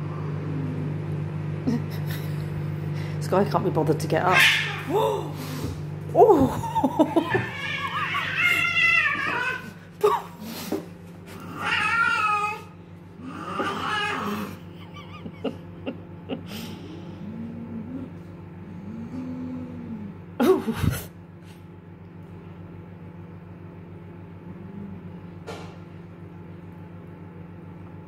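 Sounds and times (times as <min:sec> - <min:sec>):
cats growling: 0:00.0 - 0:02.9, 0:04.2 - 0:21.1, 0:24.1 - 0:25.6
cats yowling: 0:04.3 - 0:05.4, 0:06.2 - 0:10.3, 0:11.4 - 0:15.5.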